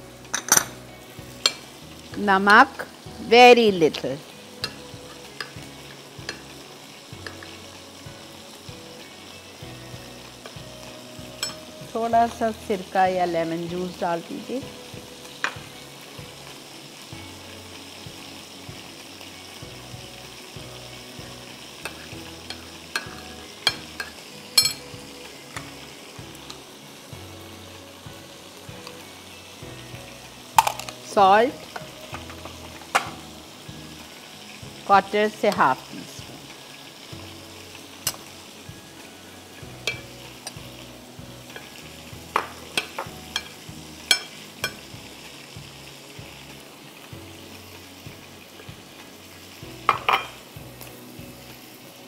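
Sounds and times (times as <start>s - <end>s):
oil sizzling in a pan: 0.0s - 52.0s
metal spoon clinking on a plate: 21.8s - 24.8s, 44.1s - 44.8s, 49.9s - 50.3s.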